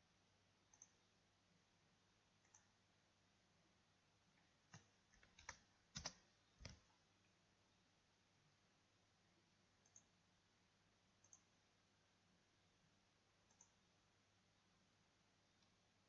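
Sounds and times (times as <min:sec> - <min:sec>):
mouse click: 0:00.7 - 0:01.0, 0:02.4 - 0:02.7, 0:09.8 - 0:10.1, 0:11.2 - 0:11.5, 0:13.4 - 0:13.8
keyboard key presses: 0:04.7 - 0:06.9.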